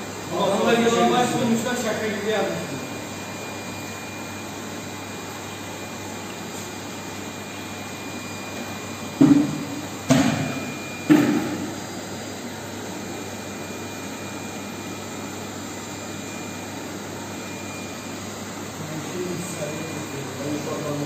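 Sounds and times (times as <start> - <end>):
steady mechanical hum: 0.0 - 21.0.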